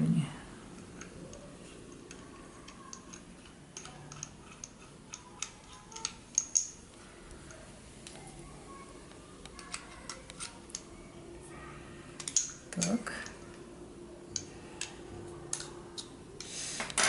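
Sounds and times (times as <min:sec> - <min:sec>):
metal parts clicking and tapping: 0:00.8 - 0:06.9, 0:09.4 - 0:10.9, 0:12.2 - 0:13.4.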